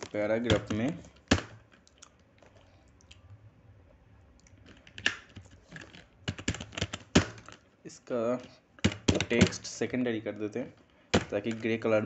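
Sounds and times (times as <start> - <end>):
computer keyboard typing: 4.7 - 7.6, 8.8 - 9.6.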